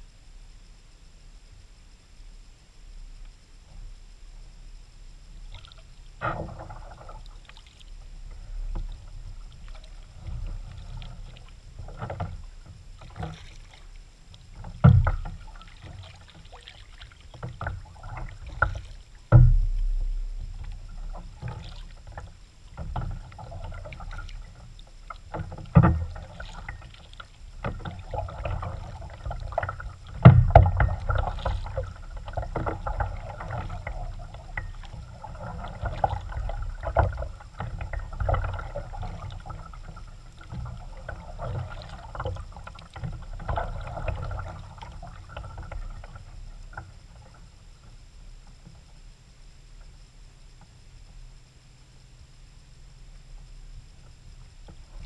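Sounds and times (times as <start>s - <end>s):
paddle splashing in water: 5.5s - 47.4s
loud thumps: 19.3s - 20.4s.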